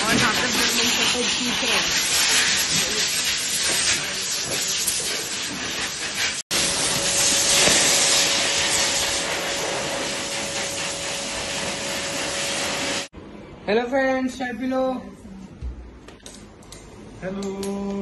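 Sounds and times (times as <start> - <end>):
dryer blowing air hiss: 0.0 - 13.1.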